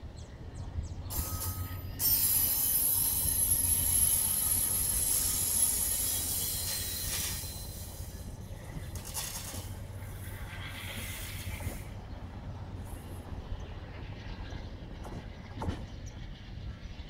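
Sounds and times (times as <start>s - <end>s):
train wheels rumbling on rails: 0.0s - 17.0s
high thin wheel squeal: 1.1s - 8.4s.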